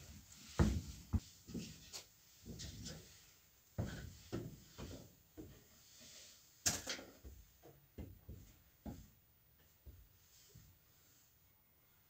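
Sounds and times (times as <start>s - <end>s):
footsteps on wooden floor: 0.0s - 3.2s, 3.8s - 5.8s, 7.2s - 9.2s, 9.8s - 10.7s.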